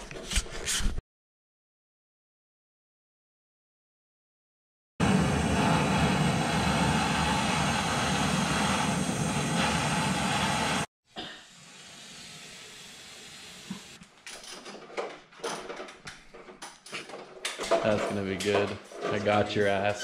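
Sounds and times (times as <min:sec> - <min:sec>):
propane torch hissing: 0:05.0 - 0:10.9, 0:11.5 - 0:14.0.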